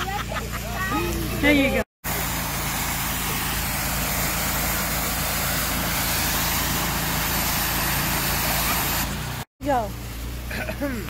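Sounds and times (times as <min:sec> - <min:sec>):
pressure washer spray hissing: 0:00.6 - 0:11.0.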